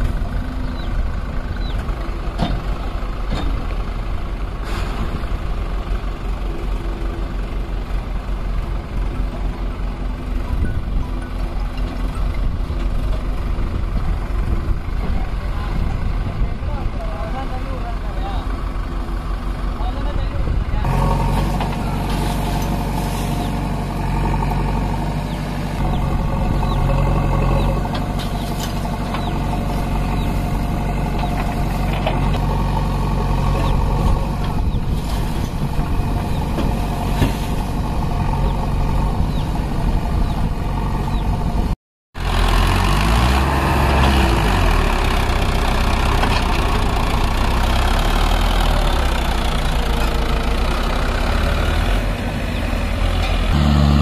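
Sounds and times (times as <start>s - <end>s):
diesel engines running: 0.0s - 54.0s
tractor engine revving: 18.0s - 54.0s.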